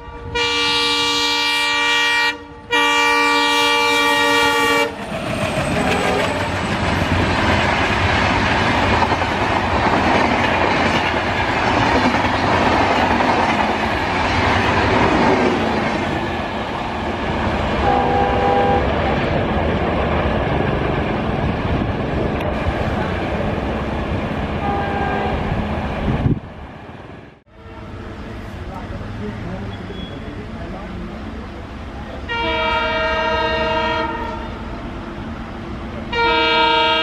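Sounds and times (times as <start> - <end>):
diesel locomotive horn: 0.0 - 6.7, 17.8 - 19.1, 24.6 - 25.6, 27.5 - 28.5, 32.2 - 34.7, 36.0 - 37.0
train wheel and rail clatter: 3.8 - 27.2.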